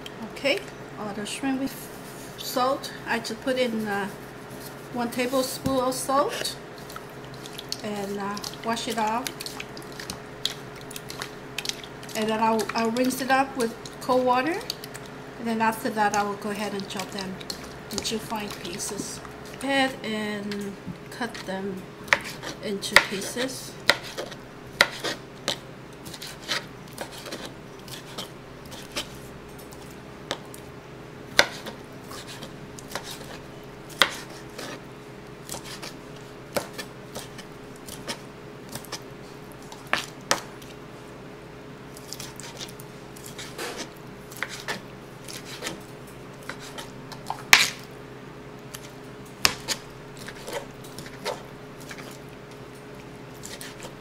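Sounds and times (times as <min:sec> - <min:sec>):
knife chopping on plastic board: 0:22.1 - 0:29.1, 0:31.4 - 0:33.4, 0:34.0 - 0:34.8, 0:49.4 - 0:52.2.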